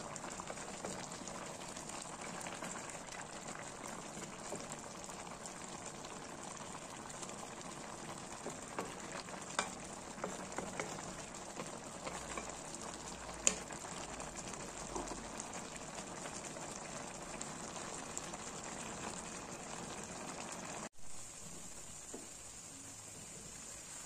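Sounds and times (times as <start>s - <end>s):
stew bubbling in a pot: 0.0s - 24.0s
wooden spatula clicking on pan: 8.7s - 12.6s, 13.4s - 13.7s.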